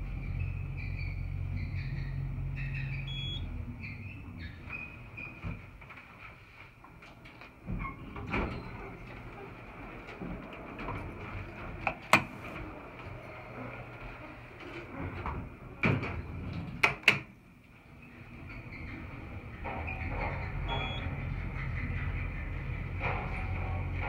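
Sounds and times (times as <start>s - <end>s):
elevator doors opening and closing: 0.0s - 5.8s, 7.2s - 24.0s
door mechanism clacks: 14.6s - 17.3s, 18.4s - 24.0s.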